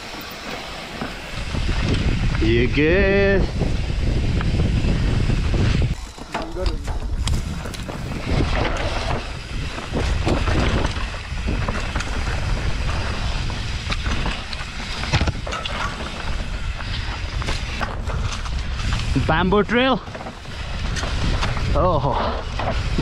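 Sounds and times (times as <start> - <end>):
tyres rumbling on dirt: 0.0 - 23.0
wind buffeting microphone: 1.0 - 23.0
bike knocks and clatters: 4.4 - 19.2, 20.0 - 23.0.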